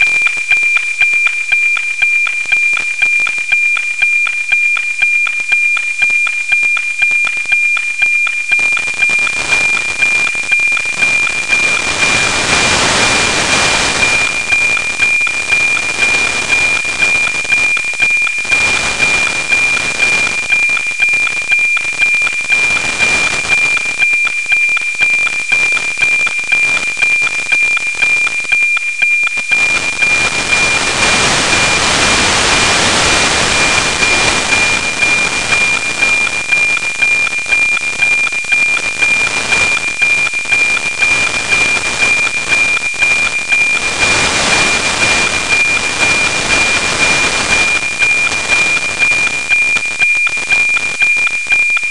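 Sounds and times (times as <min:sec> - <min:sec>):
ticking sync pulses: 0:00.0 - 0:51.9
steady radio tone: 0:06.0 - 0:28.6, 0:29.4 - 0:51.9
heavy radio hiss: 0:10.9 - 0:17.4, 0:29.6 - 0:49.0.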